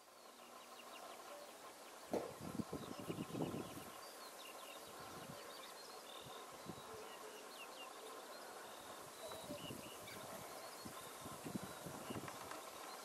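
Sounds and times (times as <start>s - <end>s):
small birds chirping and whistling: 0.0s - 13.0s.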